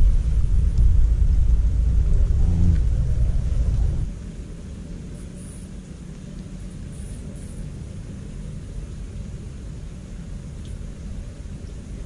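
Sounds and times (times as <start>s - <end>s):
low rumbling on microphone: 0.0s - 4.7s
outdoor background noise: 0.0s - 12.0s.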